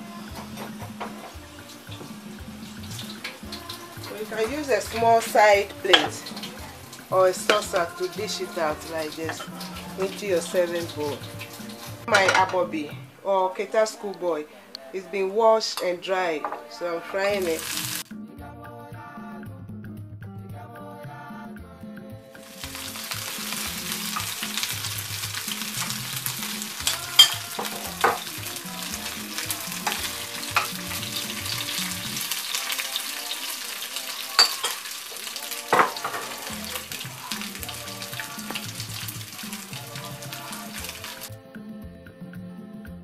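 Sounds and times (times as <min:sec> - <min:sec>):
fish frying in hot oil: 0:00.0 - 0:12.4, 0:17.5 - 0:18.0, 0:22.4 - 0:41.3
faint background music: 0:00.0 - 0:43.0.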